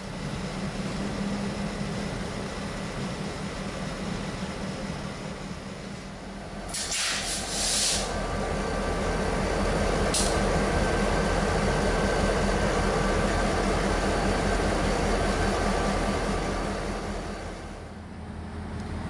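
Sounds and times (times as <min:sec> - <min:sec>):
diesel locomotive engines rumbling: 0:00.0 - 0:19.0
compressed air hiss: 0:06.7 - 0:08.1.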